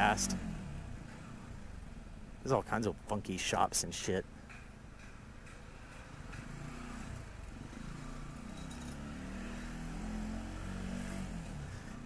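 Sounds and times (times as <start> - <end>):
small motorcycle engine: 6.2 - 12.0.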